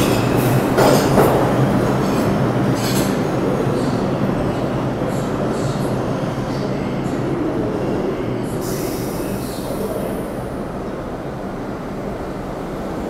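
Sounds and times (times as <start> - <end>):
rumble of wheels on rail: 0.0 - 13.0
wheel squeal hiss: 8.6 - 10.2.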